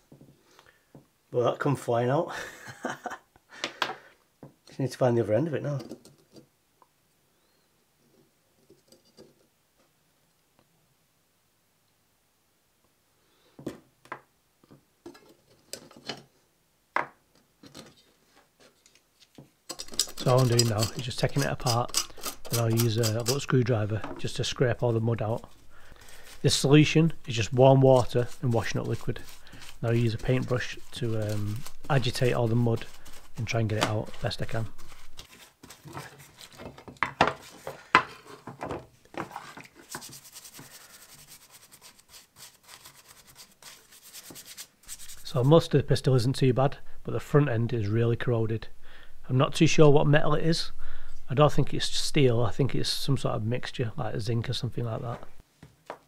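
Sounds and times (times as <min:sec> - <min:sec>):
brush scrubbing metal in water: 0:19.8 - 0:35.4, 0:39.2 - 0:45.4.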